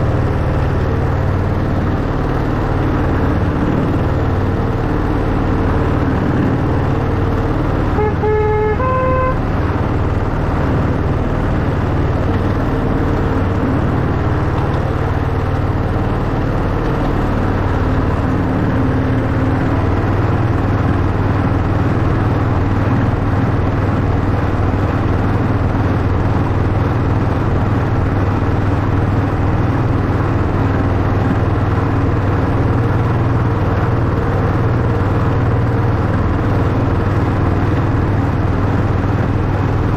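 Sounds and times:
two-note train horn: 7.9 - 9.6.

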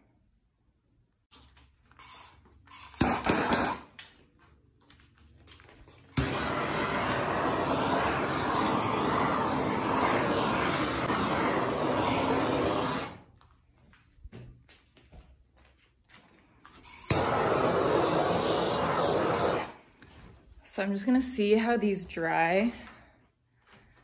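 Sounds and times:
electric blower running: 6.2 - 13.2, 17.0 - 19.8.

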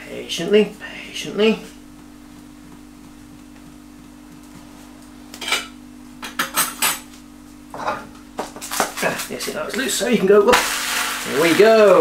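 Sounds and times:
steady low hum: 0.0 - 12.0
kitchenware clinking and knocking: 5.4 - 7.0.

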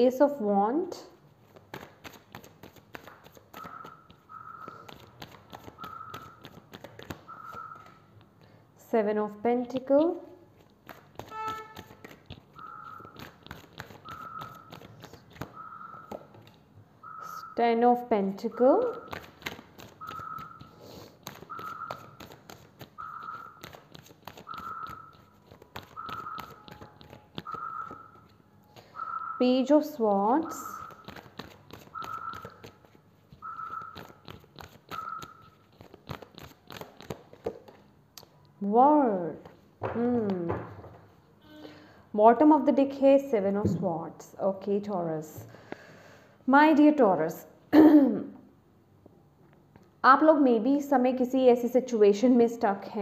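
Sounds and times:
cards being shuffled: 1.4 - 8.0, 10.1 - 16.6, 18.9 - 28.9, 30.6 - 38.3
whistle-like note: 11.3 - 11.9, 35.0 - 35.3.

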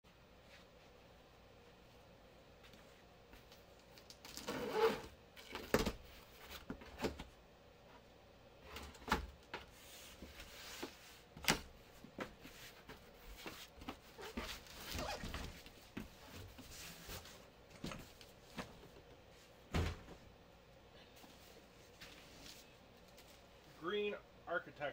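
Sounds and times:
cardboard rustling and scraping: 12.1 - 18.8.

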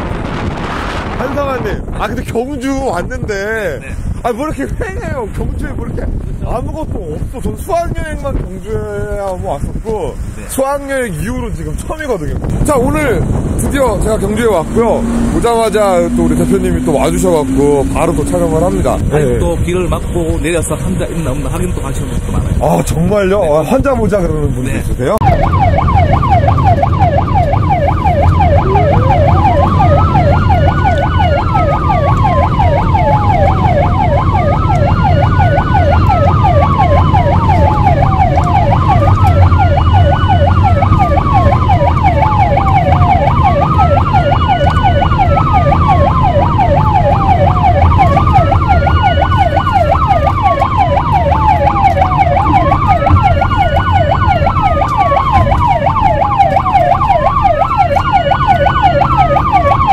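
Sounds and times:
low vehicle rumble: 0.0 - 59.9
ambulance siren wail: 12.6 - 19.6, 25.2 - 59.9
ambulance siren yelp: 13.2 - 19.3, 25.2 - 59.9.

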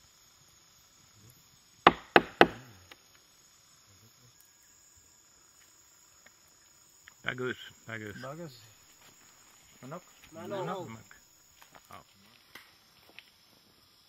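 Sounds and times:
high insect drone: 0.0 - 14.0
sharp knocks on wood: 1.9 - 2.6.

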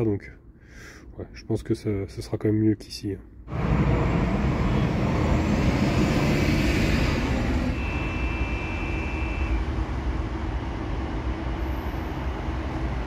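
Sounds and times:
vehicle engine and road noise: 3.2 - 13.0
thin high tone: 7.7 - 9.6.

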